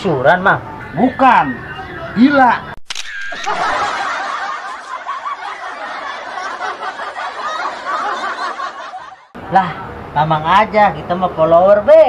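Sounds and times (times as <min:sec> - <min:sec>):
laugh track: 0:03.3 - 0:09.4.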